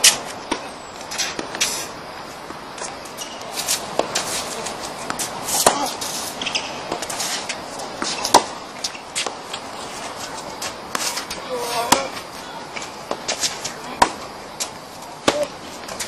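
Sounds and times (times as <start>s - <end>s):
rackets striking tennis balls: 2.5s - 16.0s.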